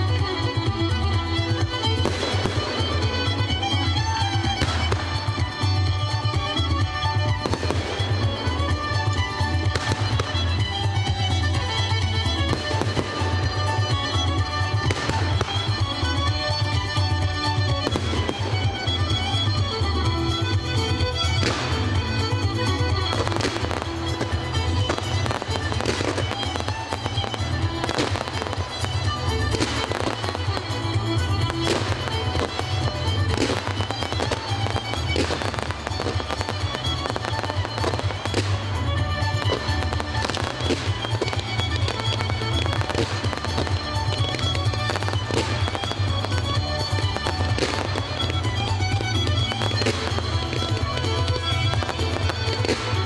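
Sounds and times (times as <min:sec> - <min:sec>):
fireworks bursting: 0:00.0 - 0:53.0
music playing: 0:00.0 - 0:53.0.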